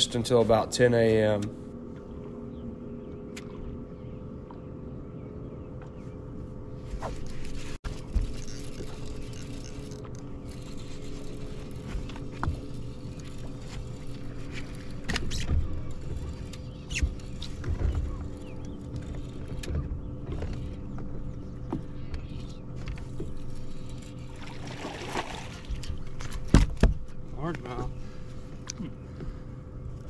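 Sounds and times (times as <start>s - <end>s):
electric trolling motor humming: 1.1s - 30.0s
knocks on boat: 26.5s - 27.0s.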